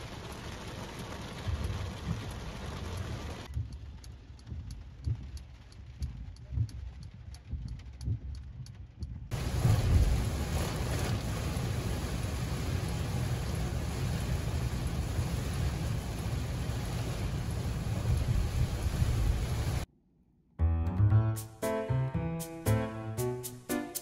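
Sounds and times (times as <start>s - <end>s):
heavy rain on a car: 0.0s - 7.9s, 9.3s - 19.9s
low road rumble: 0.0s - 19.9s
windshield wipers: 0.1s - 8.8s, 9.4s - 19.8s
ticks inside car: 1.3s - 9.3s.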